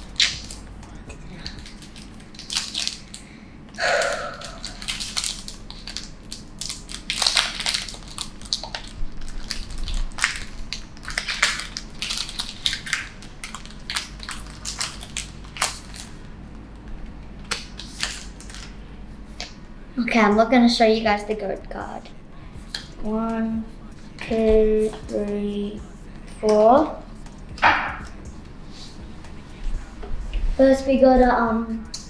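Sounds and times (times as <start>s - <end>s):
foil wrapper tearing and crinkling: 0.0s - 0.6s, 1.4s - 3.2s, 3.8s - 16.2s, 17.5s - 18.7s.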